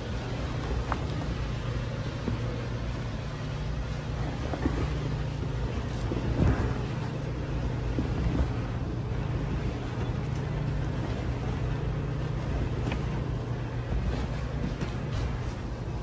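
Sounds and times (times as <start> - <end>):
blanket rustling: 0.0 - 16.0
laundry machinery hum: 0.0 - 16.0.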